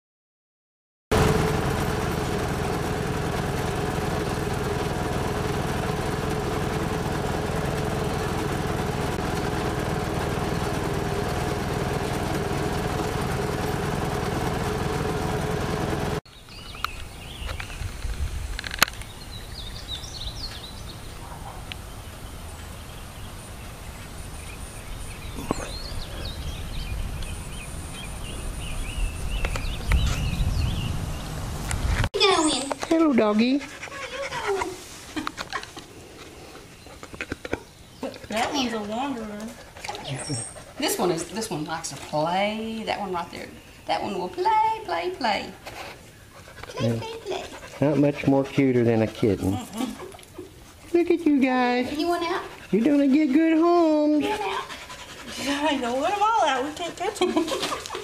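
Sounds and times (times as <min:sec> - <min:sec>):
birds chirping: 0:01.1 - 0:18.0, 0:18.9 - 0:58.0
vehicle engine and road noise: 0:01.1 - 0:33.1, 0:42.7 - 0:50.8.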